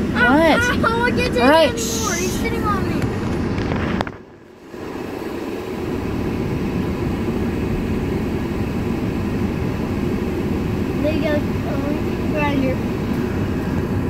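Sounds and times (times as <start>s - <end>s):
excavator diesel engine rumbling: 0.0s - 14.0s.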